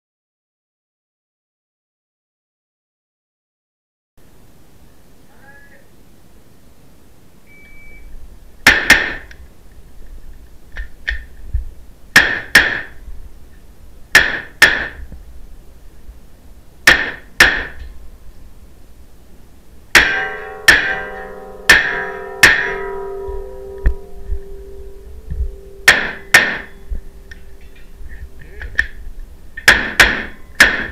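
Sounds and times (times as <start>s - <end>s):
shot timer beep: 7.5s - 8.1s
carbine gunshots echoing indoors: 8.7s - 9.4s, 25.8s - 26.8s, 29.6s - 30.9s.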